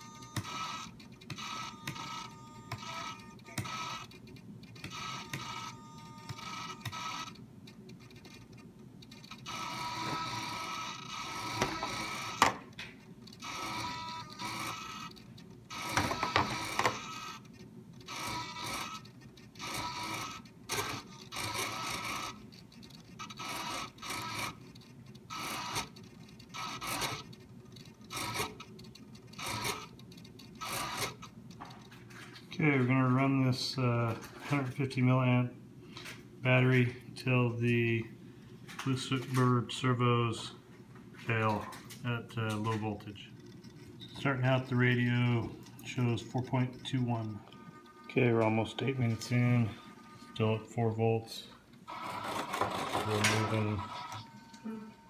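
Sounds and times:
servos whirring: 0.0s - 32.0s, 42.4s - 50.6s, 51.8s - 55.0s.

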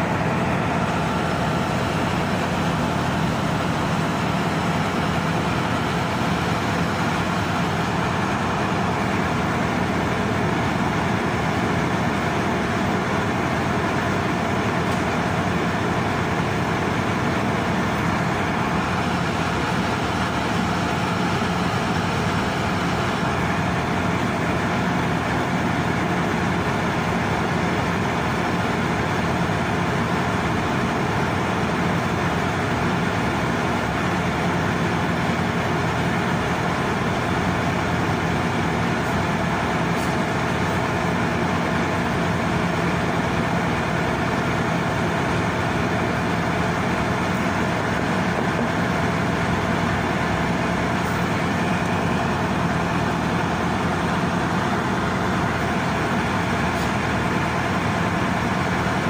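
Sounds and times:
marine diesel engine din: 0.0s - 59.0s.

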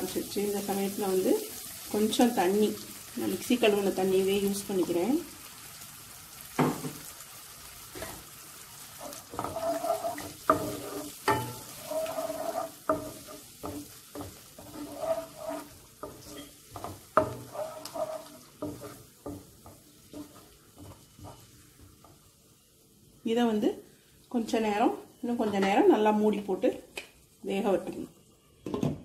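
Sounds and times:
paste sizzling in oil: 0.0s - 23.2s
spatula scraping a pan: 8.9s - 22.2s
spatula knocking against pan: 10.2s - 11.6s, 16.0s - 17.5s.

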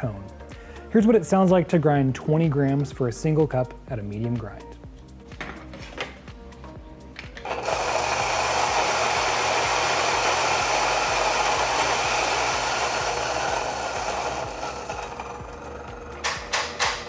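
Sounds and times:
coffee grinder grinding beans: 7.4s - 16.5s.

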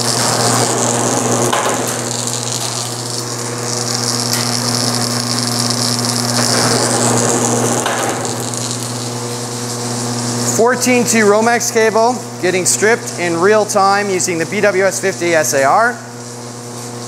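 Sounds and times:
wire stripping machine running: 0.0s - 13.9s.

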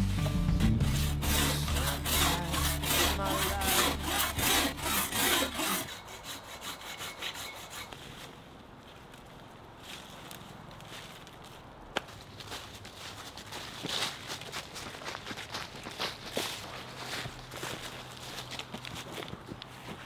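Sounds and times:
background music: 0.0s - 5.8s
hand saw cutting branch: 0.6s - 8.3s.

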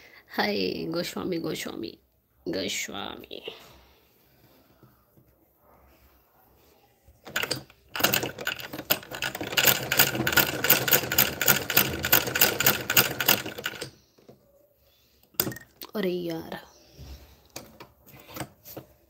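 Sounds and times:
sewing machine clatter: 7.2s - 14.0s.

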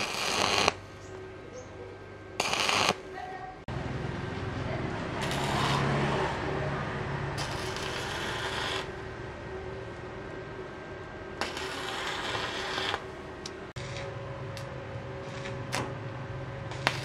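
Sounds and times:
welding arc crackling: 0.0s - 0.9s, 2.4s - 3.1s, 5.1s - 6.5s, 7.3s - 9.1s, 11.4s - 17.0s.

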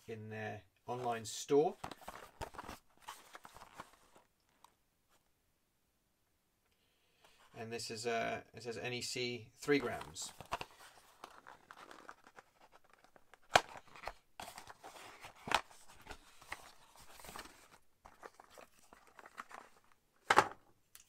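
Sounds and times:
cardboard rustling and scraping: 1.8s - 4.3s, 9.8s - 20.6s.

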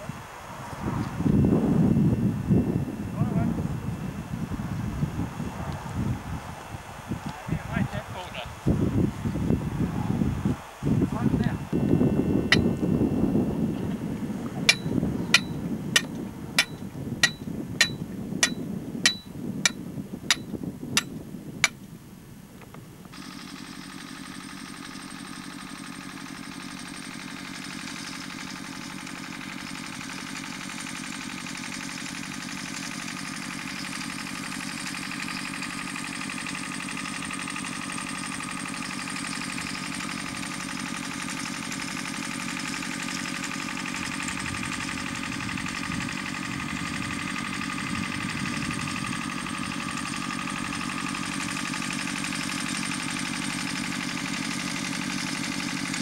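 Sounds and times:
wind on microphone: 0.0s - 23.1s, 44.0s - 51.6s.

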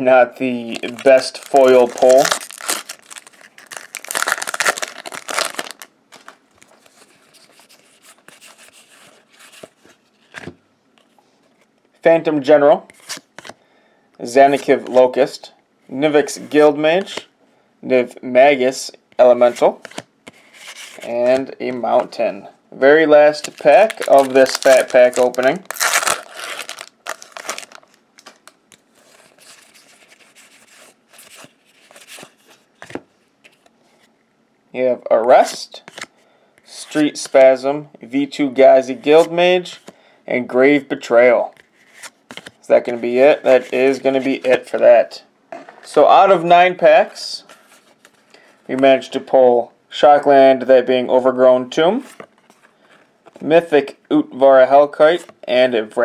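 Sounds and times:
cards rustling: 0.6s - 11.1s, 23.3s - 33.7s, 41.6s - 44.8s
foil wrapper crinkling: 0.7s - 6.4s, 23.4s - 28.6s.

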